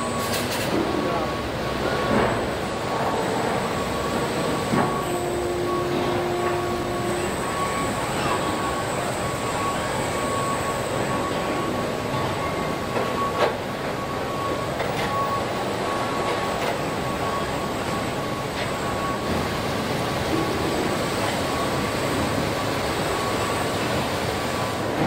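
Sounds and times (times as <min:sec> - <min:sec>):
factory machinery din: 0:00.0 - 0:25.0
high machine whine: 0:00.0 - 0:25.0.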